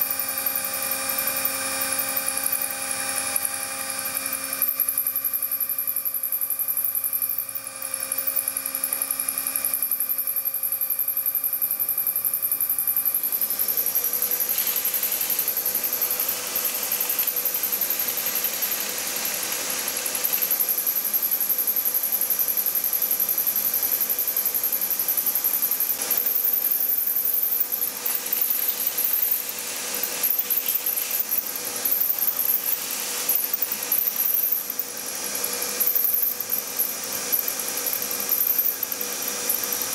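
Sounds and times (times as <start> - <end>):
motor whine: 0.0 - 39.9
end mill cutting metal: 12.9 - 21.5, 25.7 - 39.9
brush scraping metal chips: 14.3 - 17.2.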